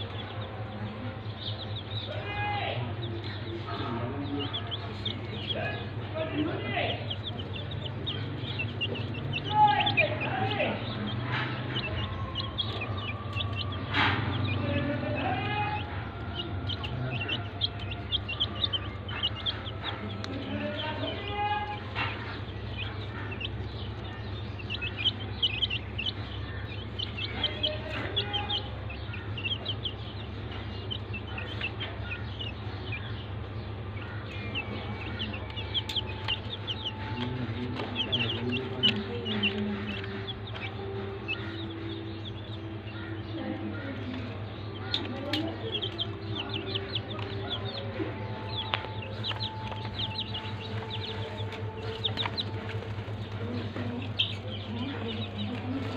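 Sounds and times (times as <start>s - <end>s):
chicks peeping: 0.0s - 55.9s
lower clucking calls: 21.8s - 55.9s.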